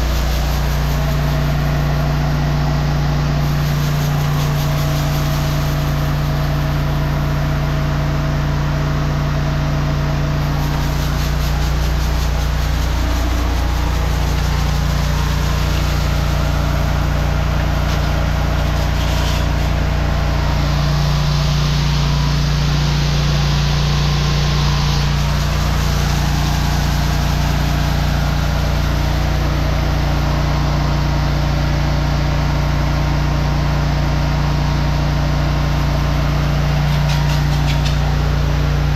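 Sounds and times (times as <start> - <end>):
water hissing from hose nozzle: 0.0 - 7.8, 10.4 - 30.4, 36.2 - 38.6
engine running steadily: 0.0 - 38.9.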